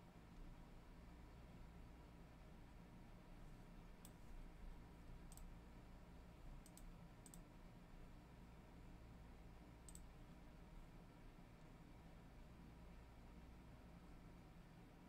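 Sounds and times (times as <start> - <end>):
faint sharp clicks: 4.0 - 4.2, 5.3 - 5.5, 6.6 - 7.5, 9.9 - 10.1.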